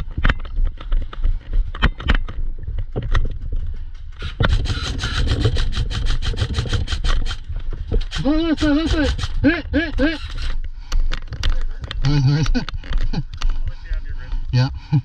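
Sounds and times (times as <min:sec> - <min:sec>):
airsoft rifle firing: 0:04.2 - 0:10.6.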